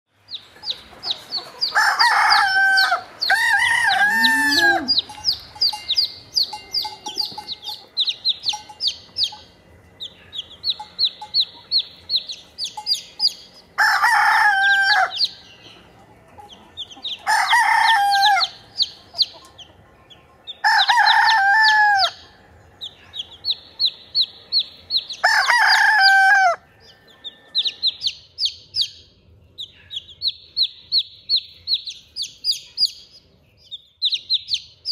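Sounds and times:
chicks peeping: 0:00.2 - 0:34.9
rooster crowing: 0:01.6 - 0:05.2, 0:13.8 - 0:15.4, 0:17.1 - 0:18.6, 0:20.6 - 0:22.3, 0:25.1 - 0:28.0.

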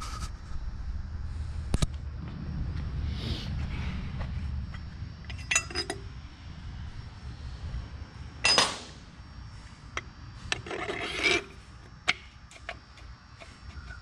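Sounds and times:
metal clink with ring: 0:05.3 - 0:06.1
metal scraping rub: 0:10.4 - 0:11.7.

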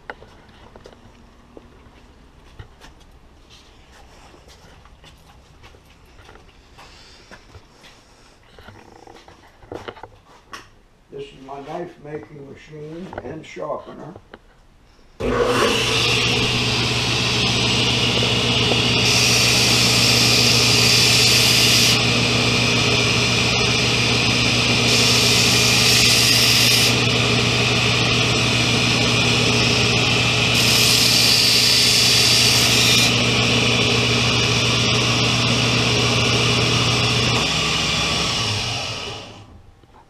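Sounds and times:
belt grinder motor hum: 0:15.2 - 0:39.6
knife grinding on abrasive belt: 0:18.7 - 0:22.1, 0:22.9 - 0:27.2, 0:28.9 - 0:33.4.

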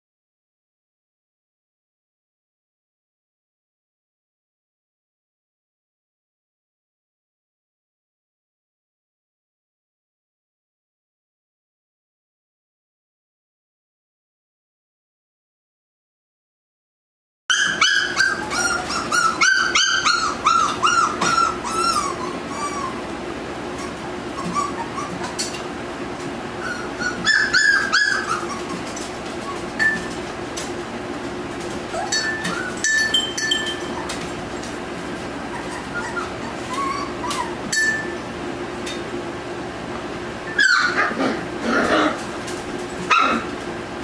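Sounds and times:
puppies yipping and whining: 0:17.5 - 0:30.7, 0:31.5 - 0:38.2, 0:40.5 - 0:43.7.

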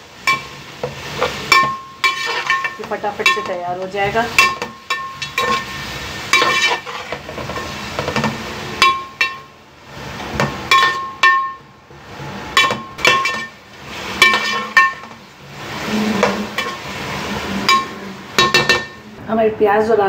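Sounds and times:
food sizzling in oil: 0:00.0 - 0:19.2
metal spoon clinking on pan: 0:00.2 - 0:00.6, 0:01.2 - 0:03.7, 0:04.3 - 0:09.5, 0:10.4 - 0:11.7, 0:12.6 - 0:13.6, 0:14.2 - 0:15.2, 0:17.6 - 0:19.0.

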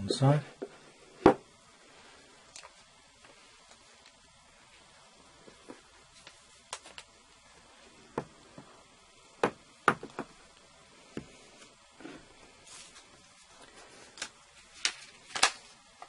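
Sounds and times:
cardboard box knocks and taps: 0:09.4 - 0:10.3
soft rustle: 0:11.0 - 0:15.2.

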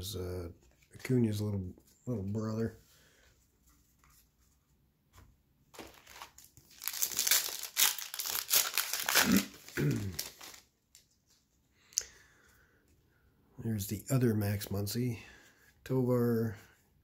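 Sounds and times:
plastic wrapper crinkling: 0:05.8 - 0:11.2.

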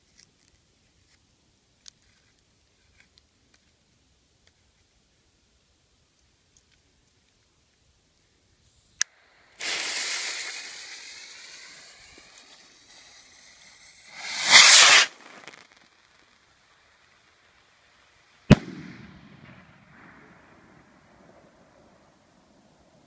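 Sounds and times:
rocket launching with rushing hiss: 0:09.2 - 0:20.4
fuse hissing: 0:09.4 - 0:15.7
loud firework bang: 0:14.1 - 0:15.5, 0:18.5 - 0:20.4.

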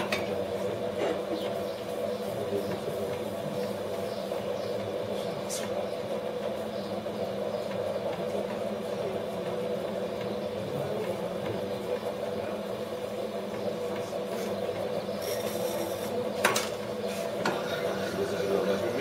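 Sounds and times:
potter's wheel motor hum: 0:00.0 - 0:19.0.

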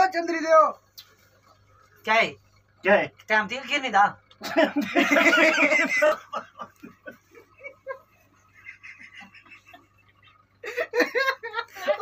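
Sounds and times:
young men laughing: 0:04.4 - 0:12.0.

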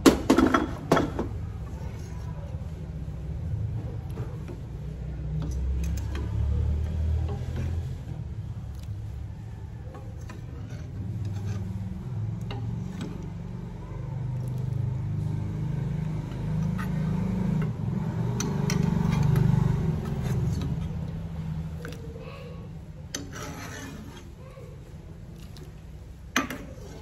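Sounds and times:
metal ladle stirring in pot: 0:01.6 - 0:27.0.

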